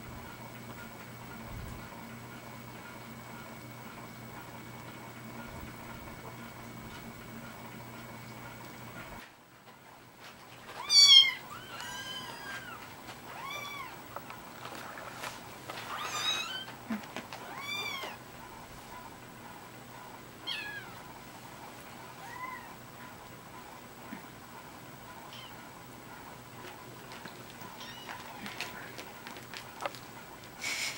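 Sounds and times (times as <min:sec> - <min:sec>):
kittens mewing: 0:27.6 - 0:29.1.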